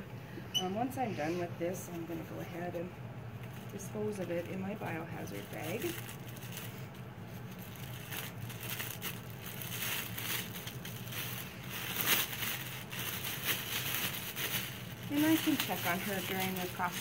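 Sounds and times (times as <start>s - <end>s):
plastic bag crinkling: 3.4s - 17.0s.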